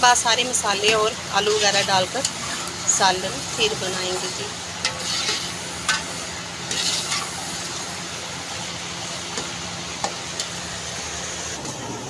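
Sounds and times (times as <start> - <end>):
chicken sizzling in a pot: 0.0 - 11.6
metal ladle scraping: 3.5 - 7.4.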